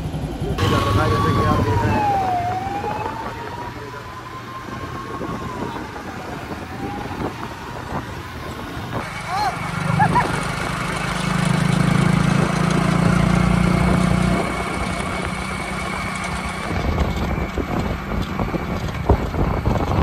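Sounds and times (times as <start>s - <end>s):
road noise: 0.0s - 20.0s
vehicle engine hum: 0.0s - 20.0s.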